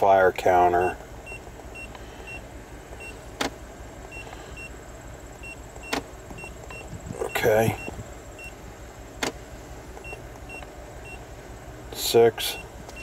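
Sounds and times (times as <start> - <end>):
car engine idling: 0.0 - 13.0
short electronic key beeps: 5.4 - 8.6.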